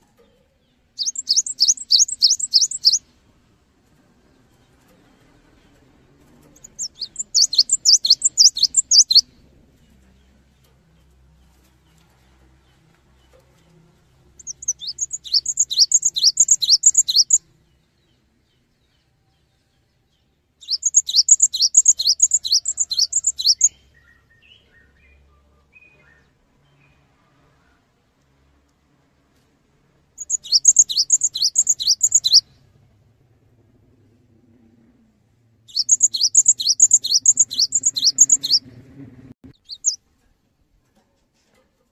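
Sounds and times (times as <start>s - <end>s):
bird singing whistled notes: 1.0s - 3.0s, 6.6s - 9.3s, 14.4s - 17.4s, 20.6s - 26.9s, 30.2s - 32.5s, 35.7s - 38.7s, 39.5s - 40.0s
soft bird call notes: 1.0s - 3.0s, 6.6s - 9.3s, 14.4s - 17.4s, 20.6s - 24.1s, 30.2s - 32.4s, 35.7s - 38.7s, 39.6s - 40.0s.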